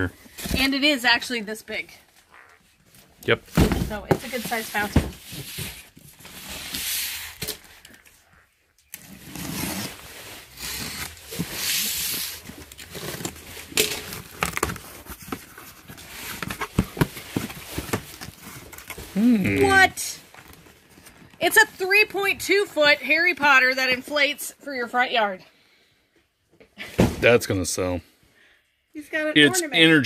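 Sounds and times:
cardboard rustling: 0:02.9 - 0:07.9, 0:09.0 - 0:21.7.

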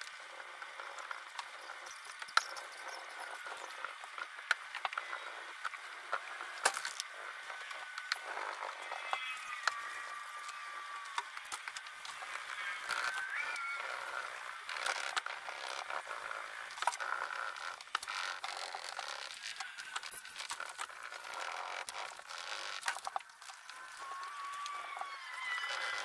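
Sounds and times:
small clicks: 0:00.0 - 0:26.0.

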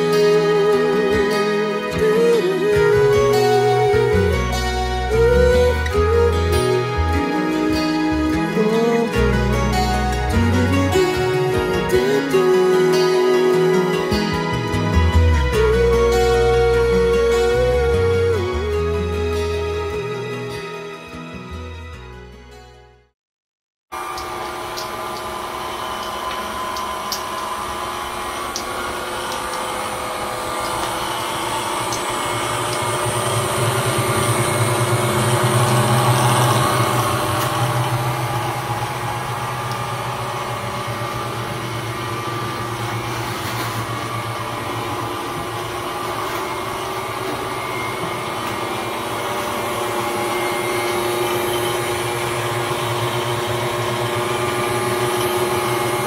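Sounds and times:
small motor humming: 0:24.0 - 0:56.0.

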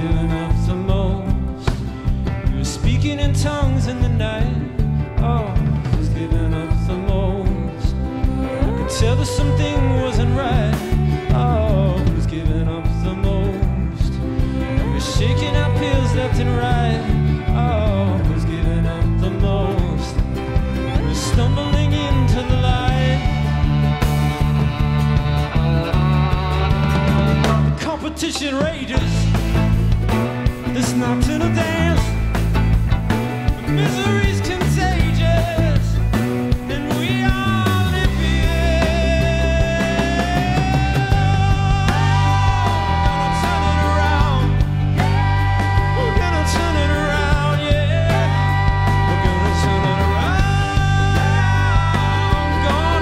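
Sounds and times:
bass and drum groove: 0:00.0 - 0:53.0
electric guitar: 0:00.0 - 0:53.0
bowed violin melody: 0:08.0 - 0:28.9, 0:39.7 - 0:53.0.

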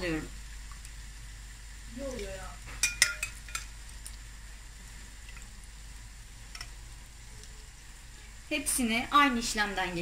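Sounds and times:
oil sizzling in a pan: 0:00.0 - 0:10.0
metal skimmer clinking on glass: 0:02.8 - 0:03.6.

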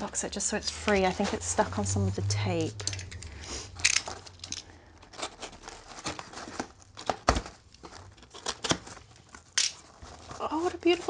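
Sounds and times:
paper packaging tearing and crinkling: 0:03.8 - 0:11.0.

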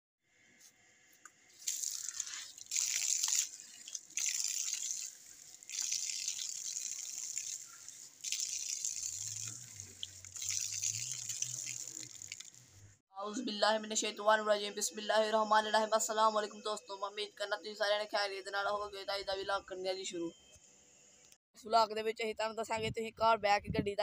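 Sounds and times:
water splashing on hands and face: 0:01.6 - 0:12.7
water running from tap: 0:01.6 - 0:12.8.

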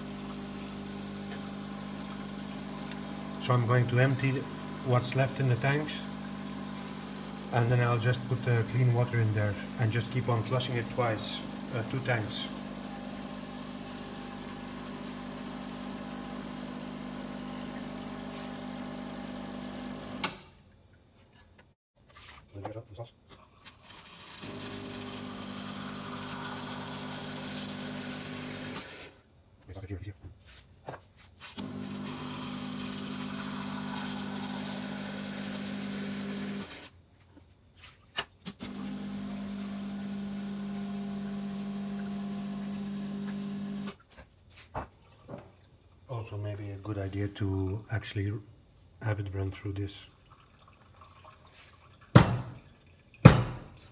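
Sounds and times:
espresso machine pump humming: 0:00.0 - 0:20.2, 0:24.4 - 0:29.1, 0:31.6 - 0:36.9, 0:38.6 - 0:43.9.

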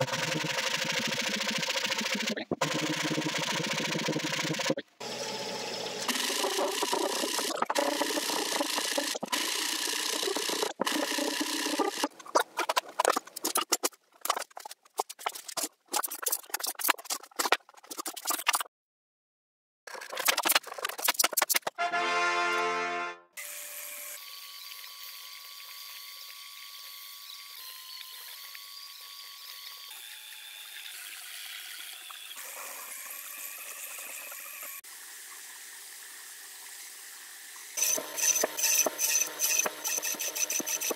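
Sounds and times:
belt sander grinding wood: 0:04.6 - 0:13.1.

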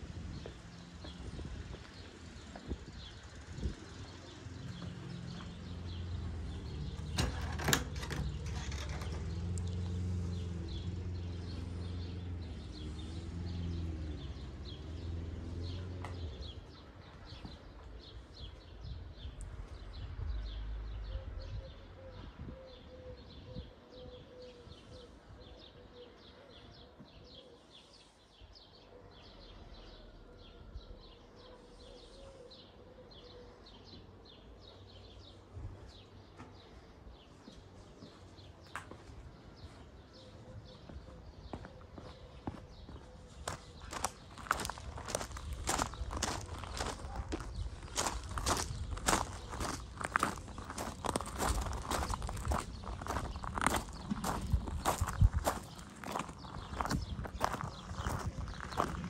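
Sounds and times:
low engine hum: 0:00.0 - 0:18.3
small birds chirping: 0:00.0 - 0:59.0.

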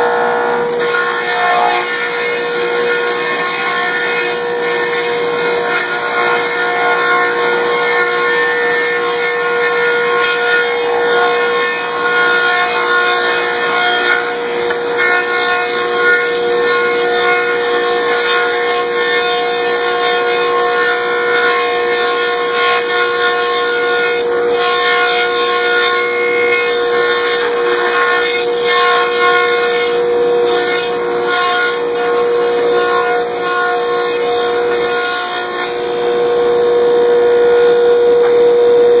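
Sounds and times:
boards being cut: 0:00.0 - 0:39.0
woodworking machine humming: 0:00.0 - 0:39.0.

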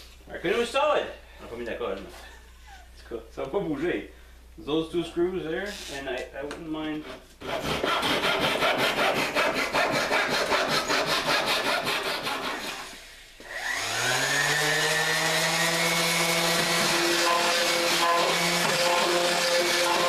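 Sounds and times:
tool rasping wood: 0:07.0 - 0:12.9, 0:13.6 - 0:20.0
power drill whine: 0:12.5 - 0:20.0.

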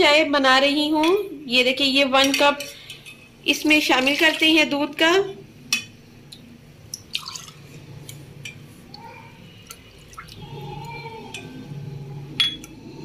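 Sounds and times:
milk pouring and splashing: 0:06.9 - 0:07.8, 0:08.9 - 0:11.0.

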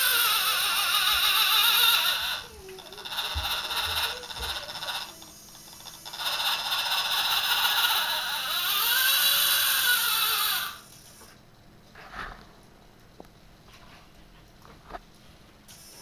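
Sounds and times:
toy car electric motor whining: 0:00.0 - 0:10.9.

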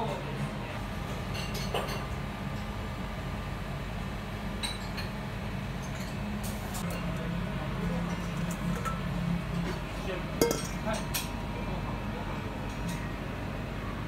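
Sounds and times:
restaurant room hum: 0:00.0 - 0:14.0.

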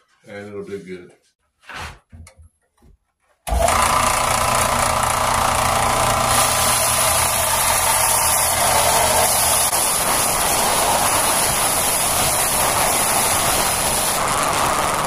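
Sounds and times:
sander motor hum: 0:03.5 - 0:15.0.

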